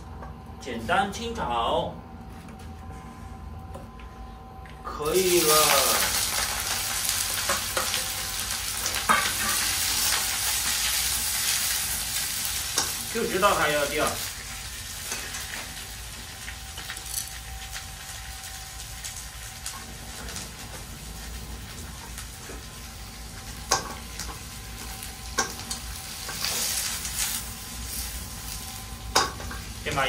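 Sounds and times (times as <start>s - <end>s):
onions sizzling in a frying pan: 5.0s - 30.0s.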